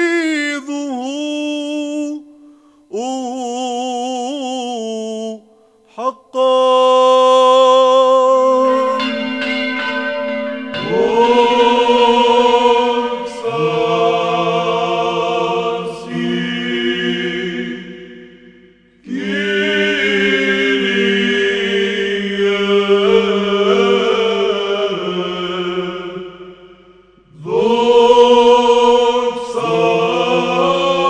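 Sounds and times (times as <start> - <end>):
voices chanting held notes: 5.9 - 18.3, 19.1 - 26.2, 27.4 - 31.0.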